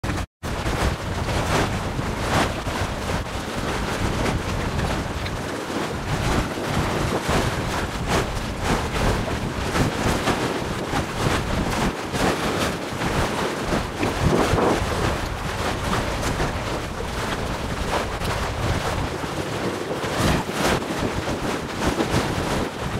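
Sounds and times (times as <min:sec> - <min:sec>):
choppy sea water: 0:00.0 - 0:22.9
wind buffeting microphone: 0:00.0 - 0:22.9.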